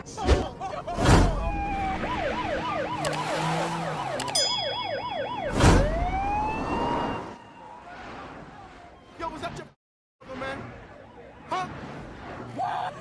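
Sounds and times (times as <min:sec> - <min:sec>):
second higher siren: 0:01.4 - 0:08.1
police siren yelping: 0:01.4 - 0:09.2
vehicle whooshing past: 0:10.4 - 0:13.0.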